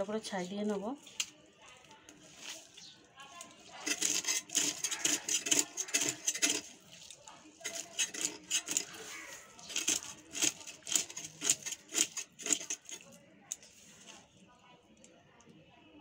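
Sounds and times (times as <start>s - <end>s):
fish scales scraped on blade: 2.8s - 14.3s.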